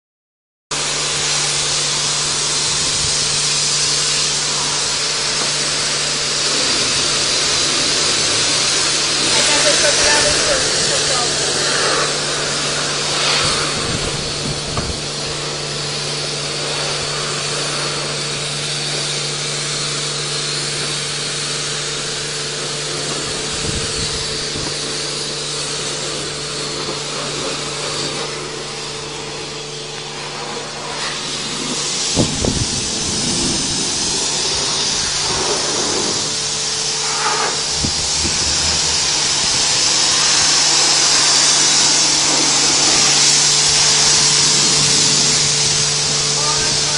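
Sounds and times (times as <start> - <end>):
pressure washer spraying water: 0.8 - 46.9
low hum: 35.0 - 41.8, 42.7 - 46.9.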